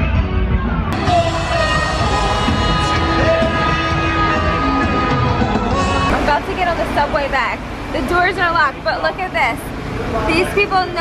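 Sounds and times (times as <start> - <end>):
music with long held notes: 0.0 - 6.2.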